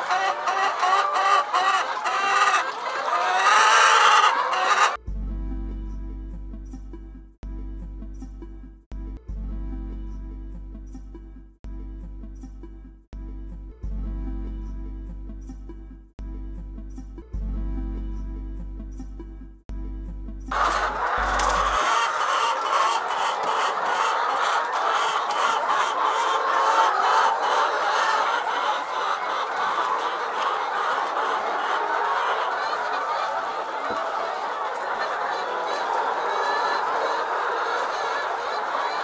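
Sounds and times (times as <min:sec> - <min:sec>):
hens clucking: 0:00.0 - 0:05.0, 0:20.5 - 0:39.0.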